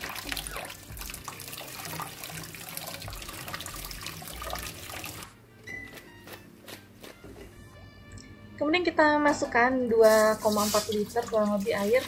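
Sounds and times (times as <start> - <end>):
hands rinsing raw chicken: 10.1 - 12.0.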